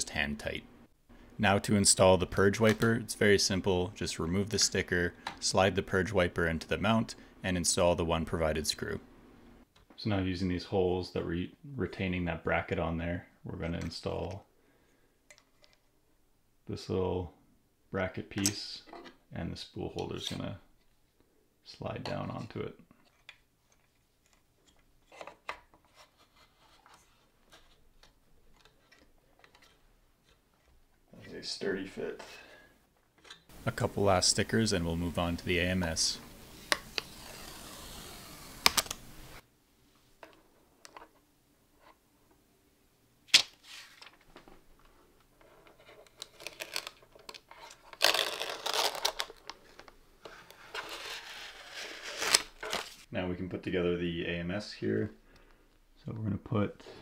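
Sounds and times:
plastic film crinkling: 46.1s - 50.0s.

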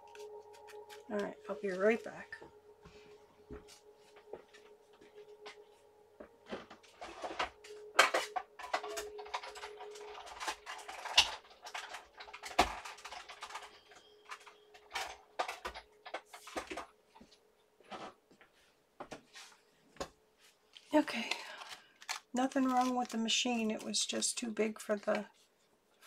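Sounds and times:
objects clattering when handled: 0.0s - 18.2s
faint steady hum: 0.0s - 26.0s.

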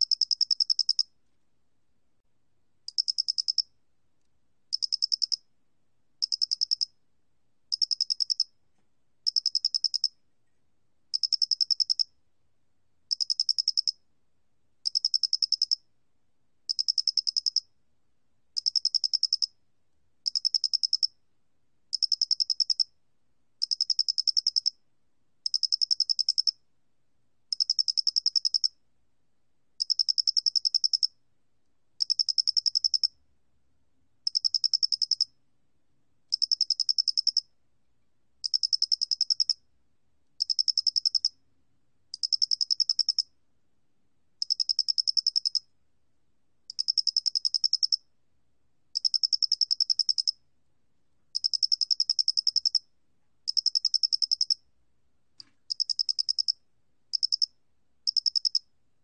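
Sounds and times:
cricket trilling: 55.7s - 56.6s, 57.2s - 57.5s, 58.1s - 58.6s.

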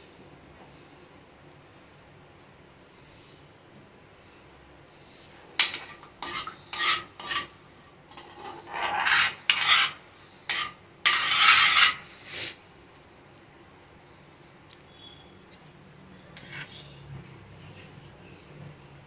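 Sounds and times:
metal spoon scraping iron pan: 5.6s - 12.1s, 16.4s - 16.8s.

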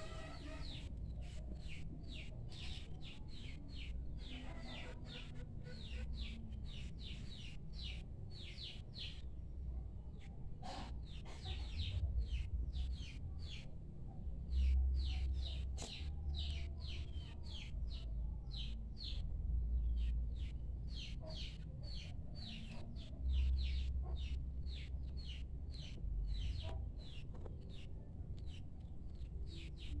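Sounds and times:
low steady rumble: 11.3s - 21.0s, 23.0s - 30.0s.

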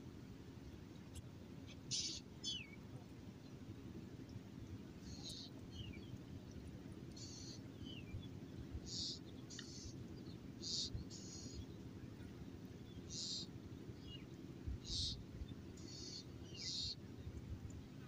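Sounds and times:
birds chirping: 5.0s - 6.2s, 8.9s - 11.7s, 12.9s - 17.0s.

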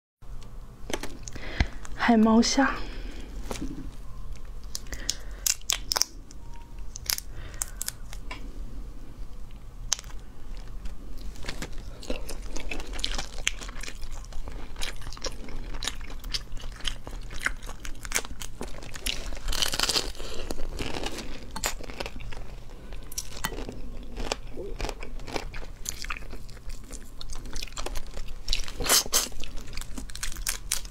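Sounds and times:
shrimp shells crunching: 9.9s - 22.4s, 23.0s - 30.9s.

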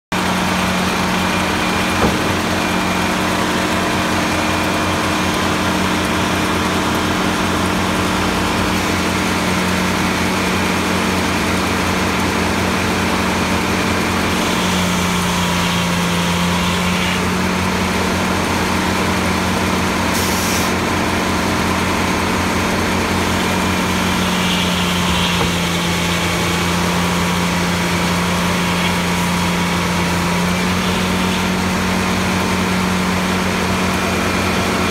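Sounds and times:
sawmill machine hum: 0.1s - 34.9s
single knock: 1.9s - 2.6s.

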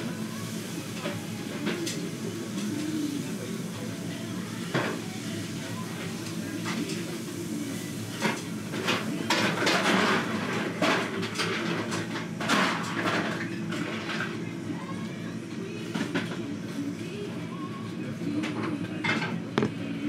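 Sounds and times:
utensils clattering on dishes: 8.1s - 14.9s.

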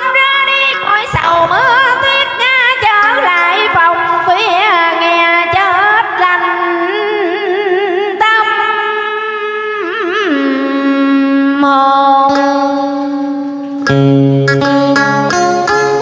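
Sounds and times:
woman singing with vibrato: 0.0s - 13.8s
plucked lute: 12.3s - 16.0s.

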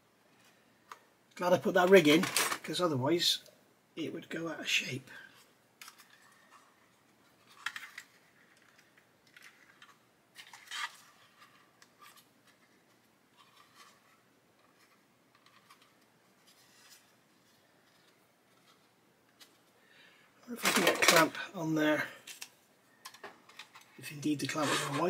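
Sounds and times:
plastic parts clicking and scraping: 1.8s - 2.7s, 5.3s - 19.8s, 20.6s - 21.4s, 22.2s - 25.0s.

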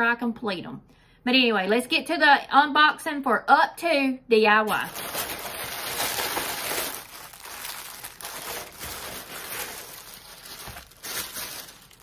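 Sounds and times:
plastic bag crinkling: 4.7s - 12.0s.

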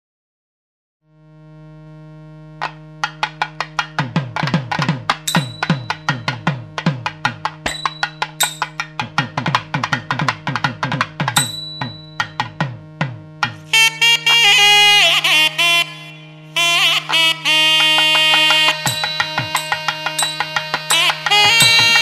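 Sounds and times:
rapid pitch-bending drum strokes: 2.6s - 14.0s, 16.9s - 22.0s
high ringing strikes: 5.3s - 6.8s, 7.6s - 9.2s, 11.4s - 12.9s, 18.7s - 22.0s
steady drone: 11.4s - 22.0s.

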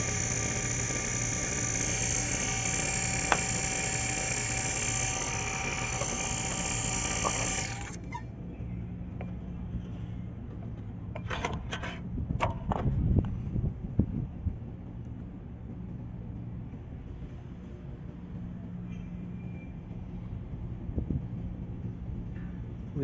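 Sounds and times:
sharp clicks and knocks: 0.0s - 8.1s
vacuum pump running: 0.0s - 8.2s.

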